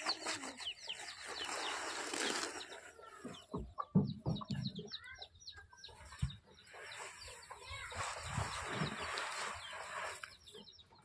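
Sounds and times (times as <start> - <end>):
leaves and sack rustling: 0.0 - 3.2, 6.7 - 10.4
birds chirping: 0.0 - 11.0.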